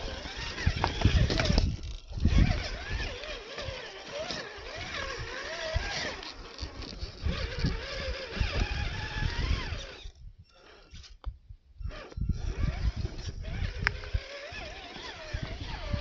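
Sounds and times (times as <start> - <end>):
rc car motor whining: 0.0 - 11.2, 11.8 - 16.0.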